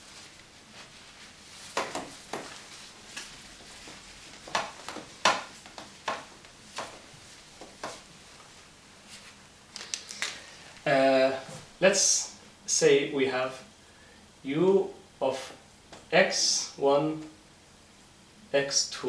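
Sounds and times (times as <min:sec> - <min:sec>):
whiteboard wiping swipes: 0:00.0 - 0:08.4.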